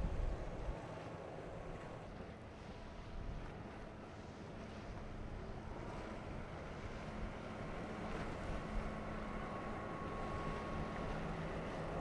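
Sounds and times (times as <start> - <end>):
outboard engine drone: 0.0 - 12.0
water rushing along hull: 0.0 - 12.0.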